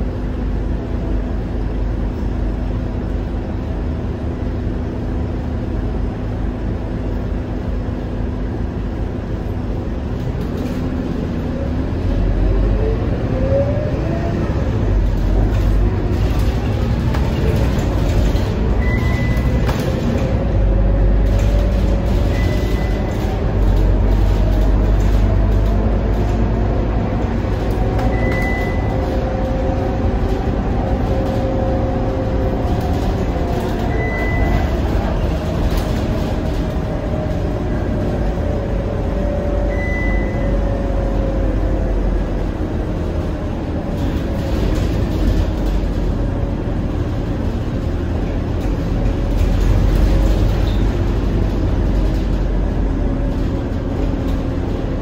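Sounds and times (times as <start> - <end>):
bus diesel engine droning: 0.0 - 55.0
short high beep: 28.1 - 28.9, 39.7 - 40.5.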